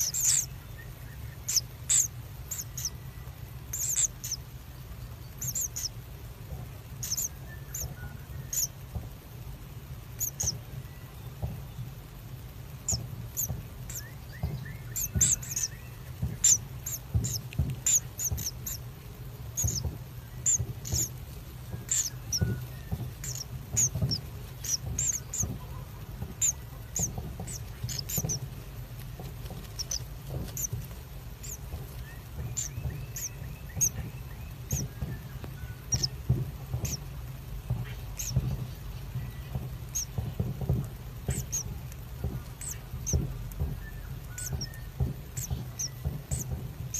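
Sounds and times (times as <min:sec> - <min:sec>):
bird nestlings squeaking: 0:00.0 - 0:06.1, 0:06.9 - 0:08.8, 0:10.1 - 0:11.1, 0:12.8 - 0:46.9
steady low hum: 0:00.0 - 0:46.9.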